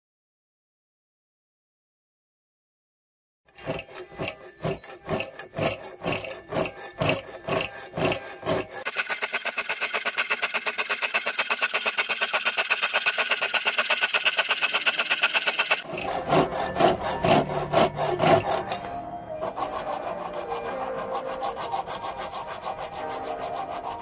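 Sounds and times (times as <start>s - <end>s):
wire saw cutting metal bar: 3.5s - 24.0s
rubbing: 19.4s - 24.0s.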